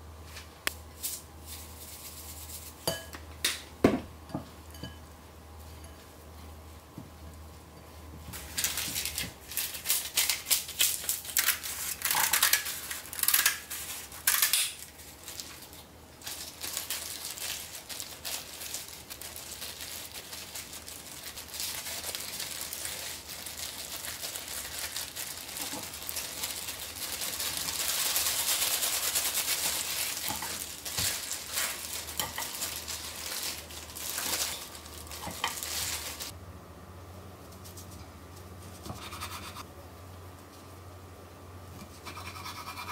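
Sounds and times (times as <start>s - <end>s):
utensils clinking against dishes: 4.3s - 5.0s.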